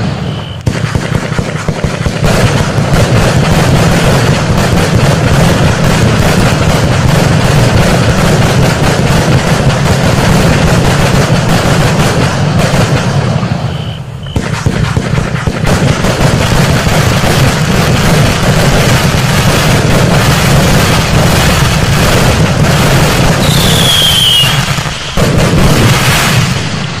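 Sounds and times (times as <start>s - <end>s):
falling firework whistle: 0.0s - 0.8s, 13.4s - 14.7s, 23.3s - 27.0s
fireworks firing rapidly: 0.0s - 27.0s.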